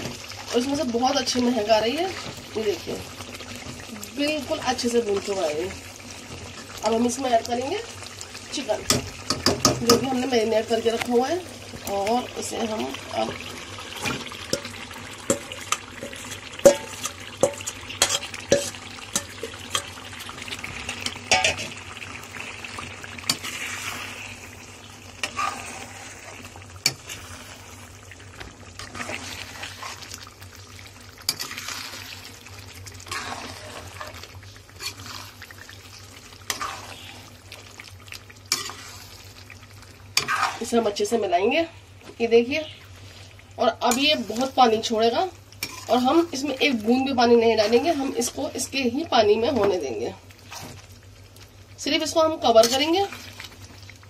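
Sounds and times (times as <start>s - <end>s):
chicken sizzling in hot pan: 0.0s - 54.0s
spoon scraping and stirring: 15.3s - 20.0s, 25.2s - 27.6s, 28.8s - 30.1s, 31.3s - 32.2s, 33.1s - 35.6s, 36.4s - 37.3s, 38.5s - 39.2s, 40.2s - 40.8s, 45.6s - 46.6s, 50.4s - 50.9s.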